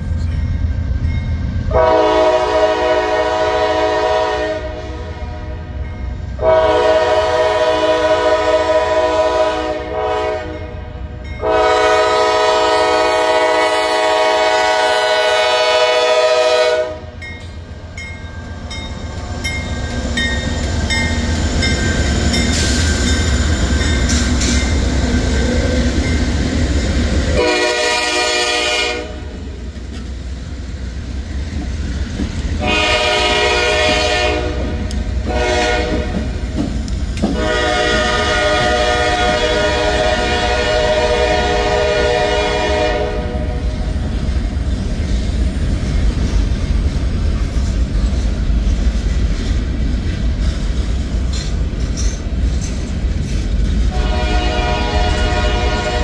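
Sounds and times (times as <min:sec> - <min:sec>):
diesel locomotives rumbling: 0:00.0 - 0:56.0
locomotive air horn blasts: 0:01.7 - 0:05.8, 0:06.4 - 0:10.8, 0:11.4 - 0:17.2, 0:27.4 - 0:29.4, 0:32.6 - 0:36.3, 0:37.3 - 0:43.8, 0:53.9 - 0:56.0
wheels clattering on rails: 0:17.2 - 0:27.3, 0:35.8 - 0:39.8, 0:44.3 - 0:54.1.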